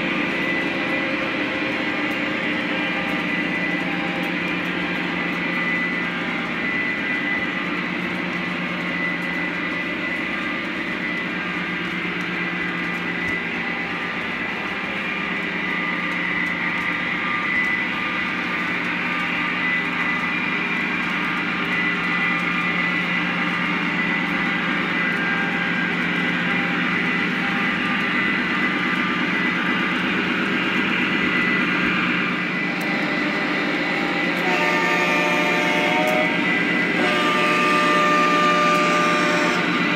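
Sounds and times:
high steady whine: 0.0 - 39.9
model train wheels and motors humming: 0.0 - 39.9.

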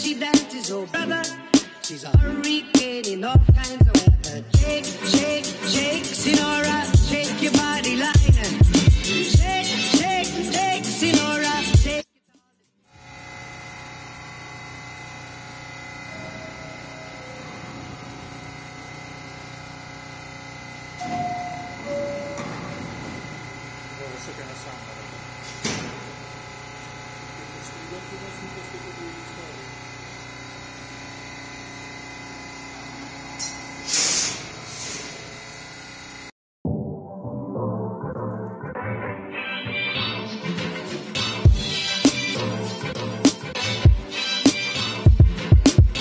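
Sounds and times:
compressed air hissing: 4.3 - 11.8, 13.6 - 31.9, 32.6 - 36.3
constant high whine: 13.1 - 33.6
subway train humming: 16.1 - 18.6, 21.1 - 24.8.

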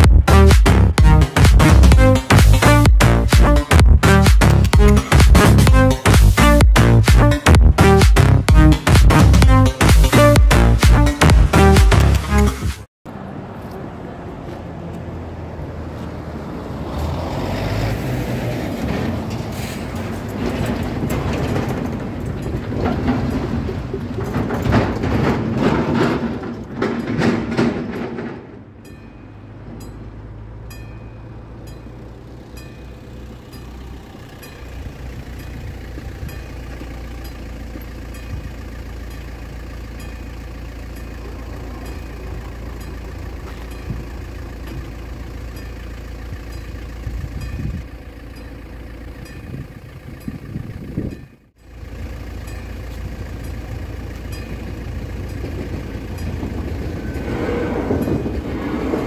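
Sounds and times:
low engine hum: 0.0 - 59.0
traffic over level crossing: 0.0 - 59.0
mechanical warning bells ringing: 19.2 - 59.0.

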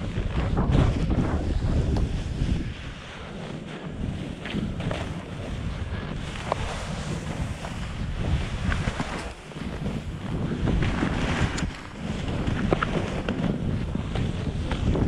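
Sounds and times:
wind rumbling on microphone: 0.0 - 15.0
snowboard hissing through snow: 0.7 - 12.2.

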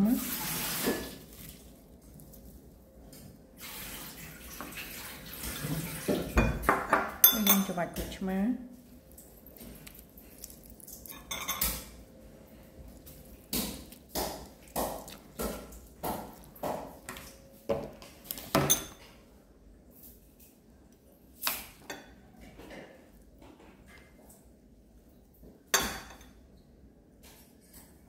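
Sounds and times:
utensils clinking on plates: 5.9 - 7.9, 11.0 - 12.0, 18.5 - 19.2.

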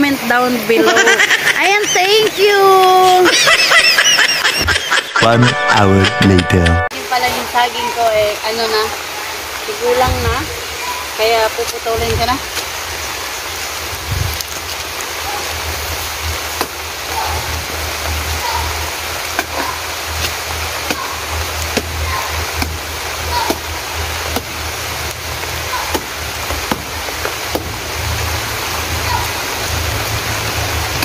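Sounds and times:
knife chopping plant trunk: 25.9 - 26.9.

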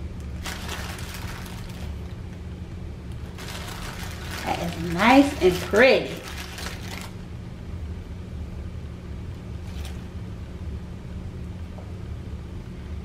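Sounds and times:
plastic bag rustling: 0.3 - 2.3, 3.2 - 7.2, 9.6 - 10.1.

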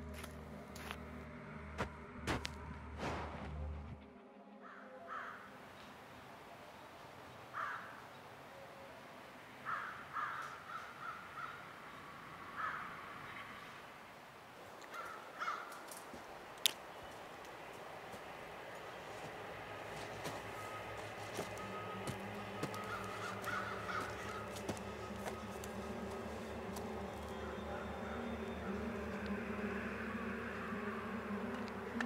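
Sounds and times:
bird cawing: 4.6 - 5.6, 7.5 - 8.2, 9.6 - 13.8, 14.8 - 31.0.

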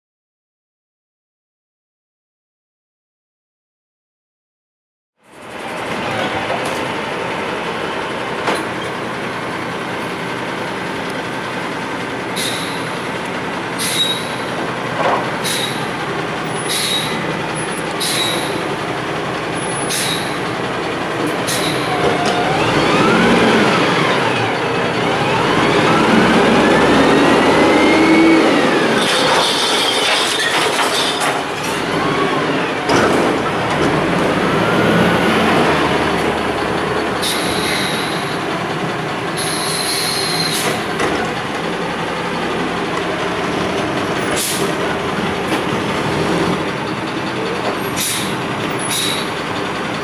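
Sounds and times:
garbage truck engine: 5.2 - 50.0
hydraulic whine: 21.2 - 38.6.

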